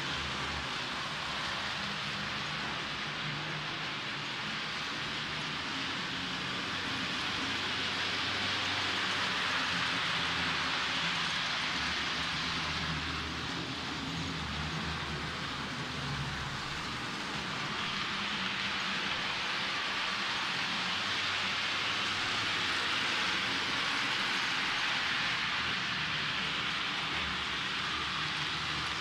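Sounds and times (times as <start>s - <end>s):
model train hissing on track: 0.0s - 29.0s.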